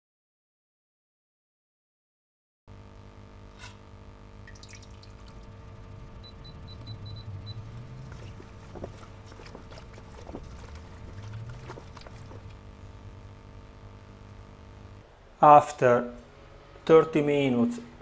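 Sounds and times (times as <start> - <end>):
steady low hum: 2.7 - 18.0
short electronic beeps: 6.2 - 7.8
spoon stirring wet mash: 7.7 - 12.6.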